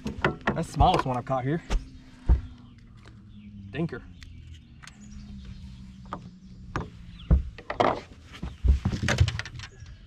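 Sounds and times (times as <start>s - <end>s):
clicks and knocks on boat deck: 0.0s - 2.4s.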